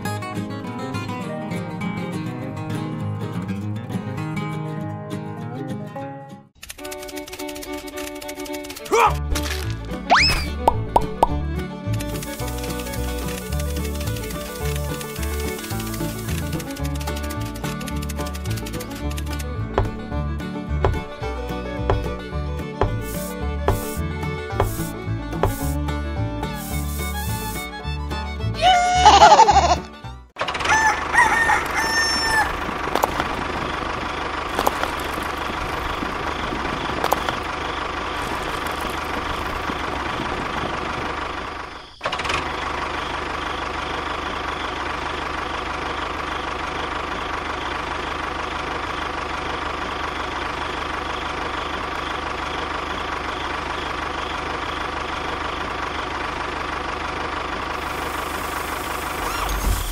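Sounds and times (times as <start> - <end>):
rooster crowing: 30.5 - 32.7.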